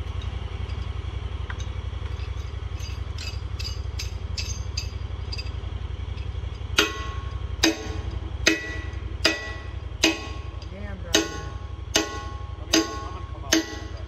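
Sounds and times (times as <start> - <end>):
light metallic clinks: 0.0 - 7.4
engine idling: 0.0 - 14.0.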